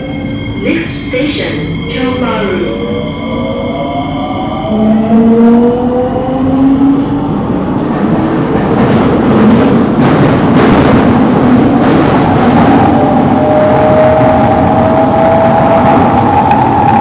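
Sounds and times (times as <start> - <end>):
wheels rumbling on rail: 4.2 - 17.0.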